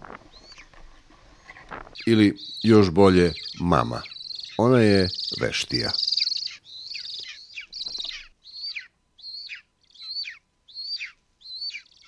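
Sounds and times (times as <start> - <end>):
eagle chick begging calls: 2.4 - 12.0.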